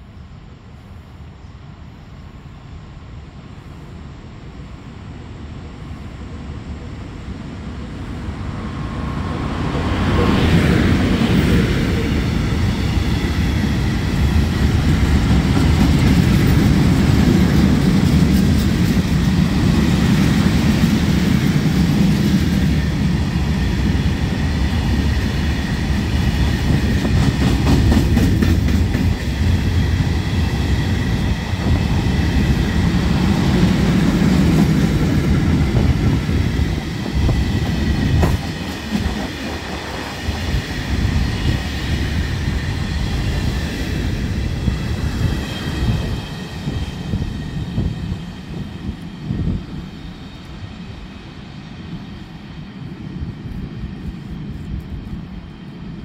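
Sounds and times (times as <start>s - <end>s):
electric locomotive passing: 0.0s - 56.0s.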